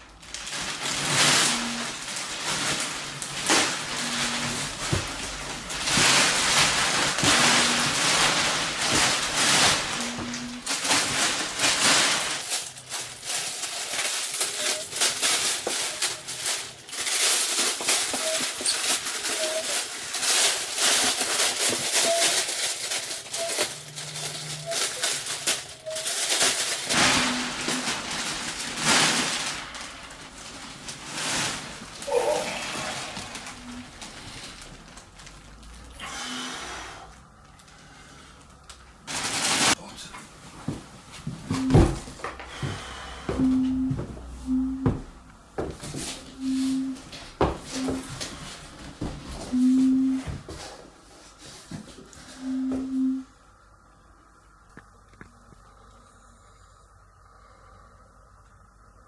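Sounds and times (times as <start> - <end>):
plastic wrapping crinkling: 0.0 - 36.0, 37.3 - 39.9.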